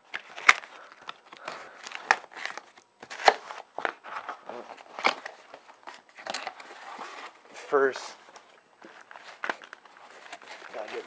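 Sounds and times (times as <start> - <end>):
cardboard crinkling and scraping: 0.0 - 11.0.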